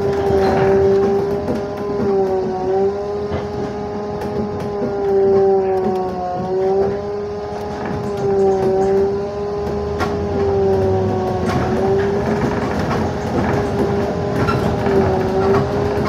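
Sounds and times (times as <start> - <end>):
electric motor whine: 0.0 - 16.0
low rolling rumble: 0.0 - 16.0.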